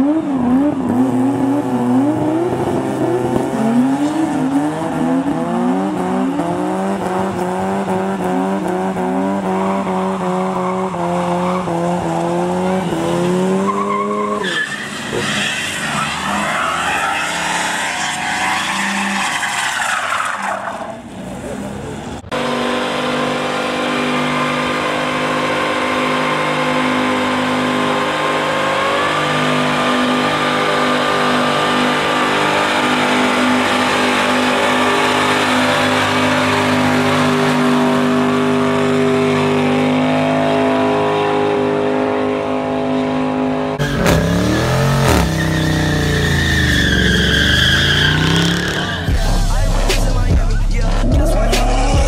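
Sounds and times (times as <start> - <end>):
car engine at high revs: 0.0 - 52.0
car engine revving in blips: 0.0 - 52.0
tyres screeching: 9.2 - 21.6, 43.8 - 52.0.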